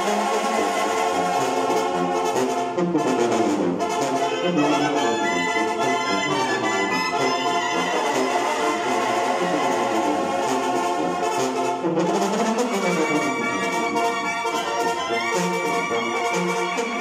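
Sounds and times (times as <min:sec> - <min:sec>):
trumpets and trombones: 0:00.0 - 0:17.0.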